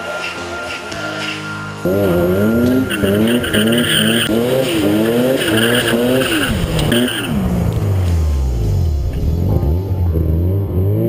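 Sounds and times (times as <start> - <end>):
rotary engine revving hard: 1.8 - 11.0
tyre squeal: 1.9 - 7.4.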